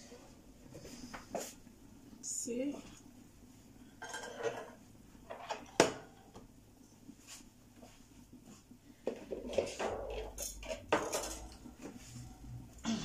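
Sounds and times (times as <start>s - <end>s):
metal cookware clattering: 4.0s - 6.2s, 9.3s - 11.6s.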